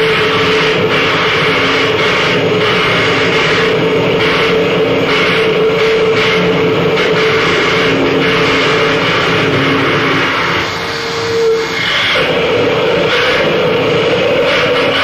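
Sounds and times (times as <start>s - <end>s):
harsh noise roar: 0.0s - 15.0s
held droning tones: 0.0s - 15.0s.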